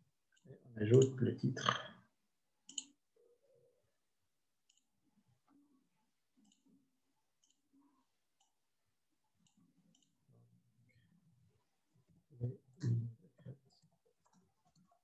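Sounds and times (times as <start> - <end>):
faint computer mouse clicks: 2.7 - 3.0.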